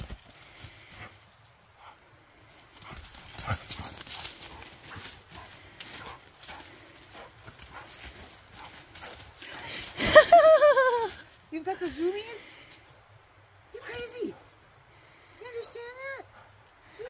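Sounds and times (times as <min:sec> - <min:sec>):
dog paws running on dry leaves: 0:02.4 - 0:12.1.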